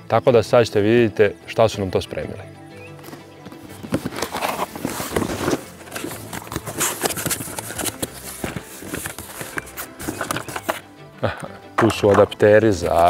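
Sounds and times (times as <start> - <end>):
cardboard rustling and scraping: 3.0 - 10.8
packing tape tearing: 3.6 - 10.8.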